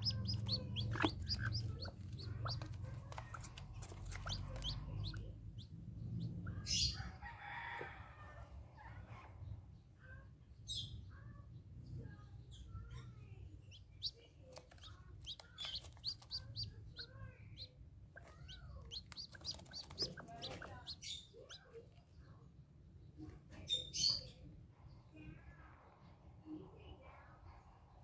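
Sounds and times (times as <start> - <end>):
hen clucking softly: 0.0 - 5.7, 14.0 - 21.8
chick peeping: 0.0 - 7.2, 13.6 - 22.0.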